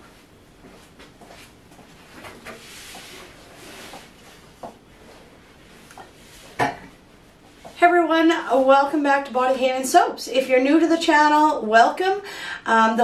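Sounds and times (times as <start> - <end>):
clothing rustling: 0.0 - 9.8.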